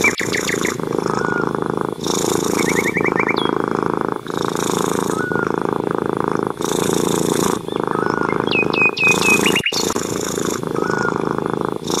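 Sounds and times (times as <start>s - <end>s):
cat purring: 0.0s - 12.0s
small birds chirping: 0.0s - 12.0s.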